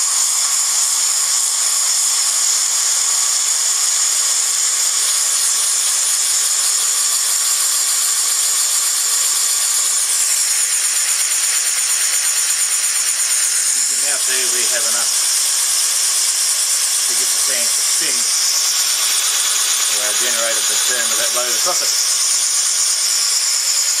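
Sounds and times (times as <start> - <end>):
compressed air hissing: 13.3 - 24.0.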